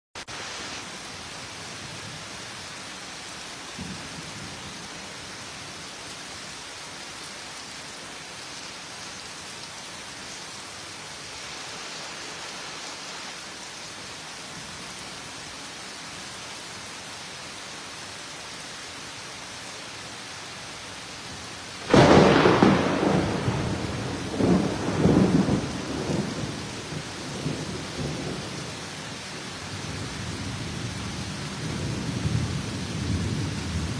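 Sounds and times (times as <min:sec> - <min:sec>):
heavy rain hissing: 0:00.2 - 0:33.9
thunderclap rumbling: 0:21.8 - 0:28.6.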